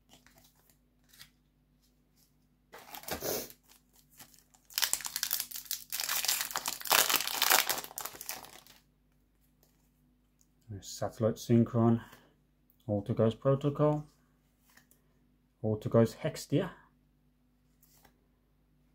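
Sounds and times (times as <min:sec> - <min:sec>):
foil wrapper crinkling and tearing: 0:02.8 - 0:08.8.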